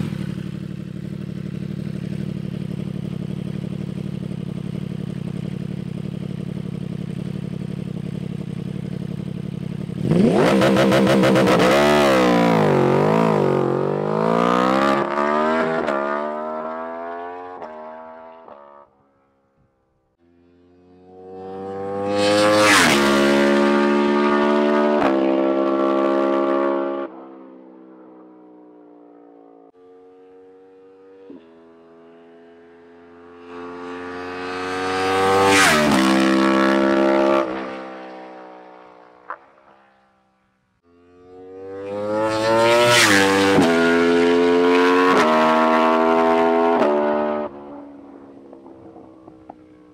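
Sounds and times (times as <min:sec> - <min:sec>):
motorcycle engine revving hard: 0:00.0 - 0:18.8, 0:21.0 - 0:27.1, 0:33.4 - 0:38.8, 0:41.0 - 0:47.9.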